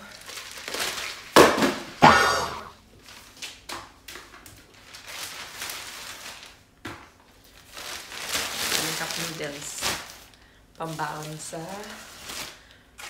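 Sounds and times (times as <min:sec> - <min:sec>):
plastic bag rustling: 0:00.0 - 0:01.4, 0:04.4 - 0:13.0.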